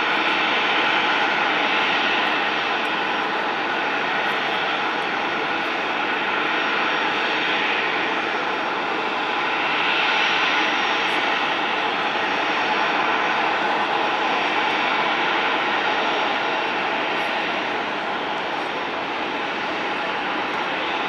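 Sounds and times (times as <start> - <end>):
jet engines running: 0.0 - 21.0.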